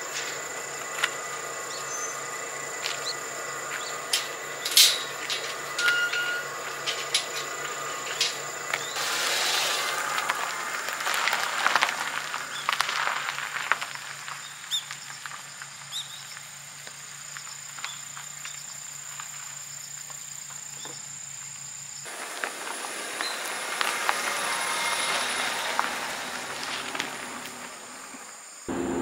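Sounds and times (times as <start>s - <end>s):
insects chirring: 0.0s - 29.0s
clicks and rustles: 4.0s - 9.0s.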